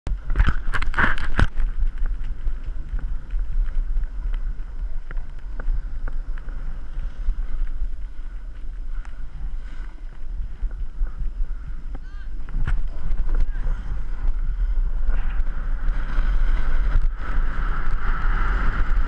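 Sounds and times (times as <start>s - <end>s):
wind buffeting microphone: 0.1s - 19.0s
snowboard scraping over snow: 12.6s - 19.0s.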